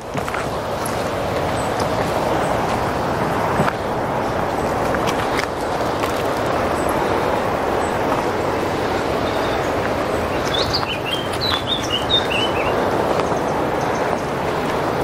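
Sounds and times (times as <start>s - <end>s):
steady rushing background noise: 0.0s - 15.0s
songbird chirping: 6.5s - 14.3s.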